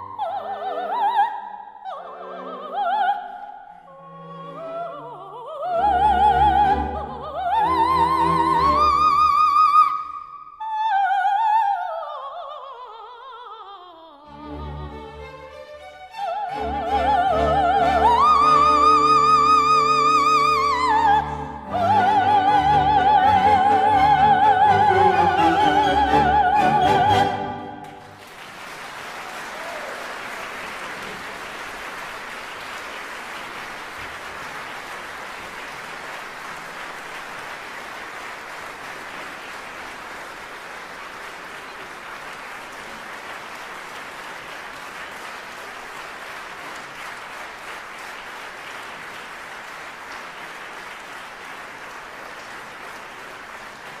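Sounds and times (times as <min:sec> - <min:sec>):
soprano singing: 0:00.0 - 0:27.9
orchestra playing: 0:05.8 - 0:09.4, 0:14.3 - 0:28.2
audience applauding: 0:26.8 - 0:54.0.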